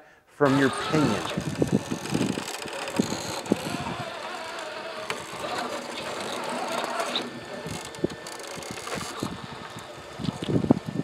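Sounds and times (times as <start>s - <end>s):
electric motor whining: 0.4s - 11.0s.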